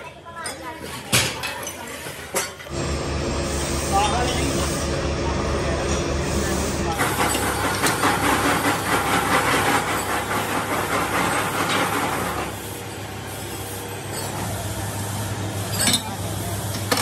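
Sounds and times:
low machine hum: 2.7s - 10.3s
machinery hiss-like noise: 2.7s - 17.0s.

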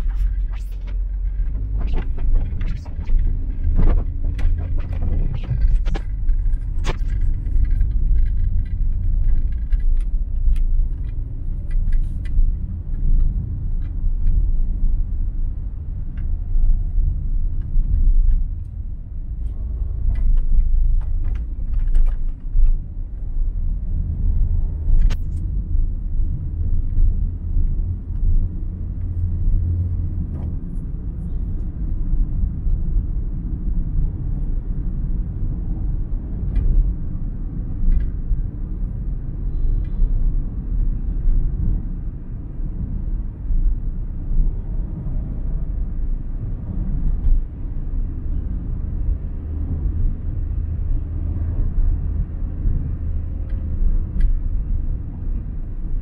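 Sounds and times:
car driving low rumble: 0.0s - 56.0s.

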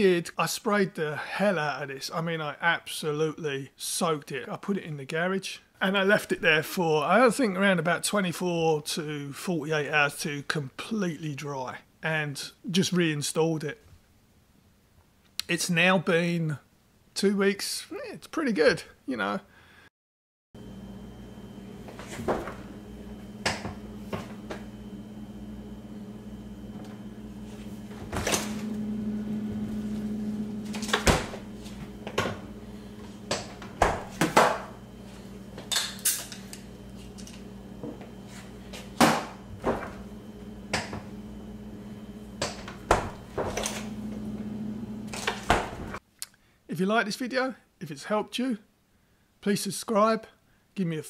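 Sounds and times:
low hum: 20.6s - 46.0s
refrigerator doors clunking: 27.7s - 34.8s, 42.4s - 46.0s.

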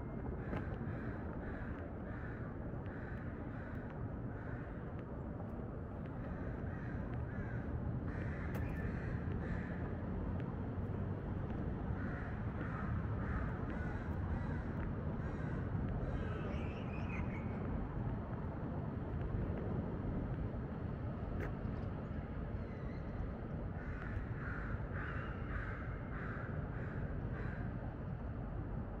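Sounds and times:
crows cawing: 0.4s - 4.8s, 6.4s - 9.8s, 12.0s - 16.2s, 23.8s - 27.7s.

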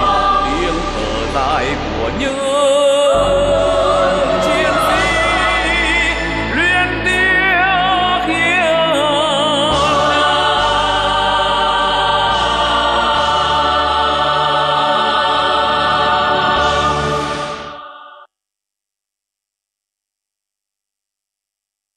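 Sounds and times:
male soloist singing: 0.0s - 11.2s
choir singing held chord: 0.0s - 18.3s.

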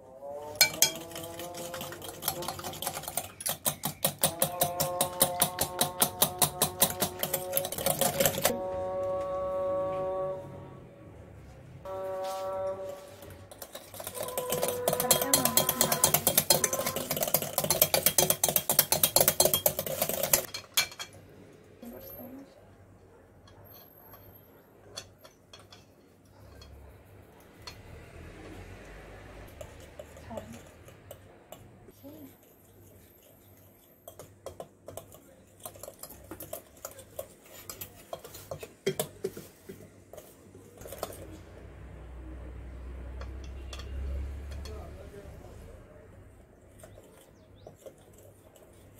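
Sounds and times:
utensil clicking against glass bowl: 0.6s - 8.5s, 13.6s - 20.5s.

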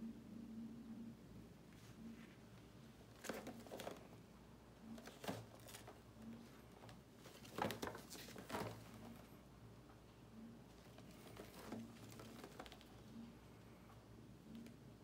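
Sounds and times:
box rustling: 3.1s - 4.1s, 5.0s - 6.0s, 7.2s - 9.3s.

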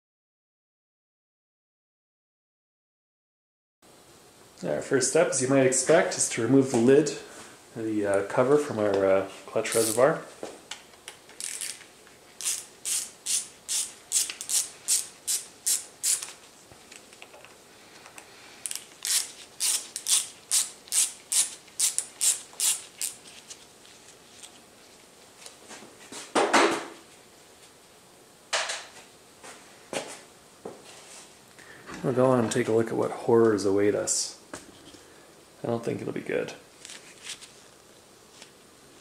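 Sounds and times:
ratcheting screwdriver clicking: 11.3s - 11.8s, 12.4s - 16.4s, 18.7s - 23.2s.

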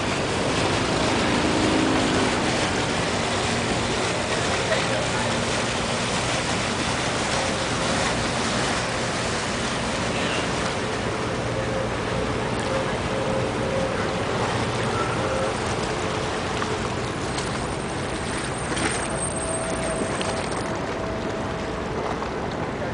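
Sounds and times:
low engine drone: 0.0s - 22.9s
water wash rushing: 0.0s - 22.9s
wind: 0.0s - 22.9s.

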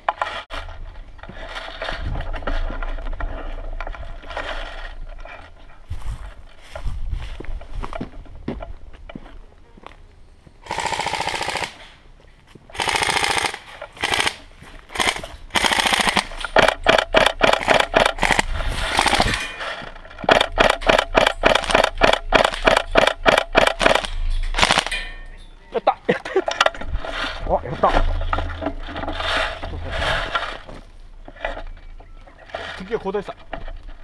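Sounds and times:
airsoft guns firing: 10.6s - 11.9s, 12.7s - 19.4s, 20.3s - 25.0s.

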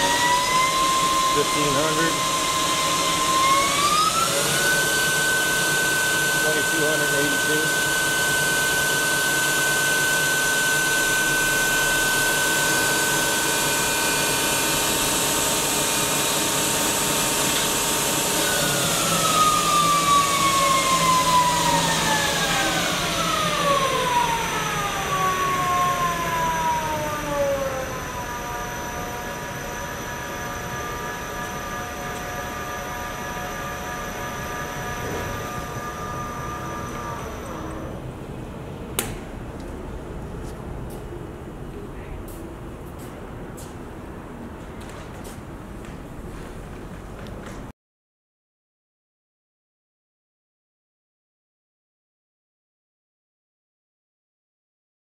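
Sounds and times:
lathe spindle drive whine: 0.0s - 38.8s.

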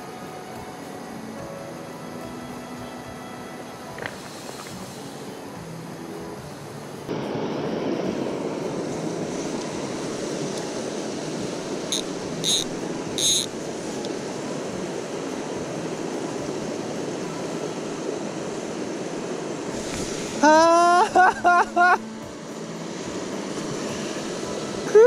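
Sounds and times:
stream flowing over rocks: 8.6s - 25.0s
short high chirps: 11.9s - 13.5s.

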